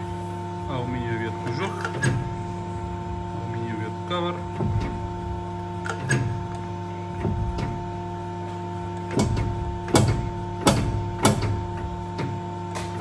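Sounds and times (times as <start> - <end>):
hydraulic crimping machine humming: 0.0 - 13.0
sharp metallic clicks and knocks: 5.8 - 6.6, 9.0 - 13.0.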